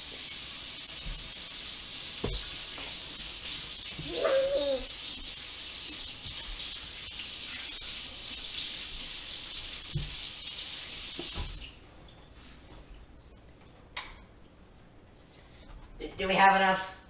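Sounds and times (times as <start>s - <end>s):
water running from a faucet: 0.0s - 11.8s.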